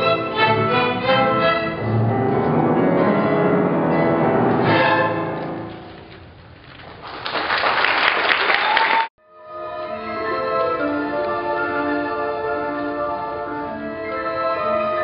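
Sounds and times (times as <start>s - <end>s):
string ensemble playing: 0.0s - 5.9s, 9.3s - 15.0s
audience applause: 6.8s - 9.1s.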